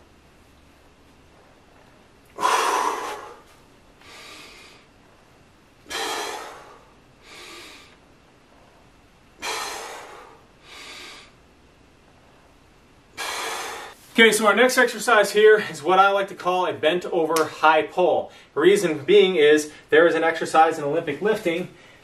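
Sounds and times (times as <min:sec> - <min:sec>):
man breathing hard: 0:02.3 - 0:05.0, 0:05.8 - 0:08.0, 0:09.4 - 0:11.4, 0:13.1 - 0:14.1, 0:21.7 - 0:22.0.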